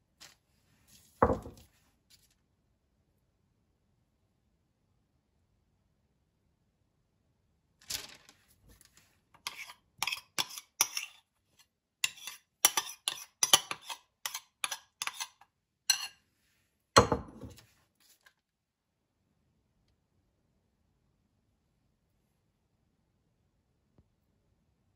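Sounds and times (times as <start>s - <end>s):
spoon clinking on ceramic bowl: 12.1s - 16.1s.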